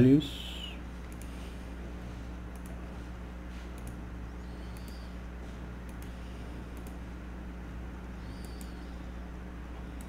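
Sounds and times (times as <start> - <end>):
low electrical hum: 0.0 - 10.0
computer mouse clicks: 1.0 - 1.3, 2.5 - 2.8, 3.7 - 4.0, 4.6 - 5.1, 5.8 - 7.0, 8.2 - 8.8.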